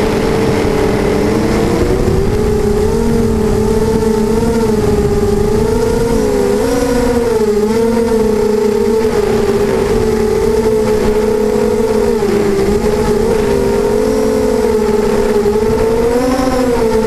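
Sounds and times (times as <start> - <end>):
wind rushing: 0.0 - 16.2
drone motors whining: 0.0 - 17.0.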